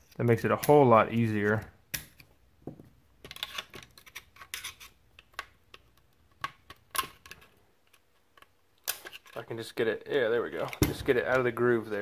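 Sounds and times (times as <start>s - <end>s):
metallic clicks and scrapes: 3.2s - 9.5s.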